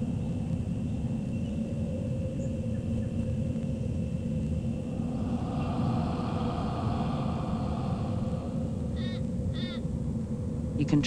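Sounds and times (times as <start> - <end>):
constant hum: 0.0 - 11.0
low rumble: 2.1 - 10.8.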